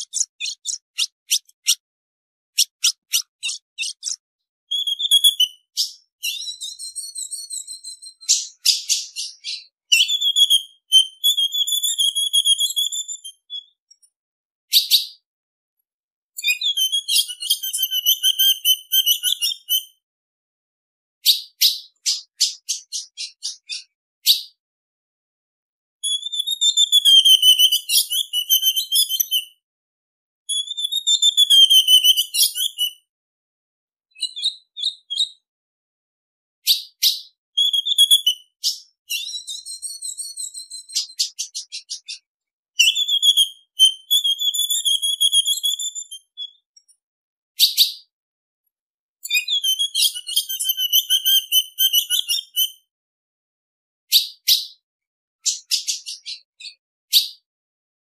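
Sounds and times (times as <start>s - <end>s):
bird sharp chips: 0.0s - 1.8s, 2.6s - 10.2s, 21.2s - 24.4s
bird ticking notes: 0.0s - 1.8s, 2.6s - 5.9s.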